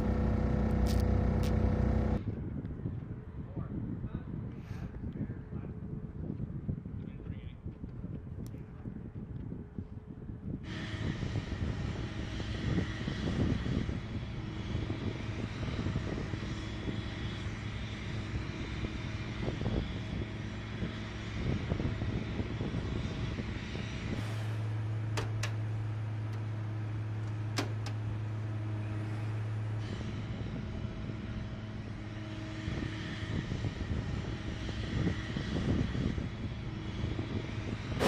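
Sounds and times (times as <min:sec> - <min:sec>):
handling noise and rumble: 0:00.0 - 0:02.2, 0:22.9 - 0:32.1
low machine hum: 0:00.0 - 0:03.4, 0:09.6 - 0:38.0
wind rumble on microphone: 0:00.0 - 0:38.0
jet engine whine: 0:10.6 - 0:38.0.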